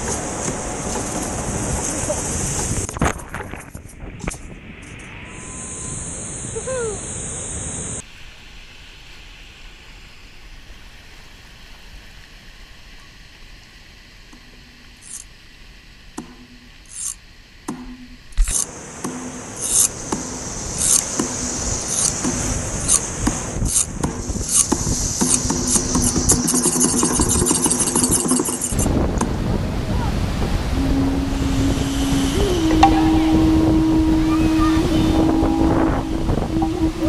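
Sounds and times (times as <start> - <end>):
rushing whitewater: 18.7 - 37.0.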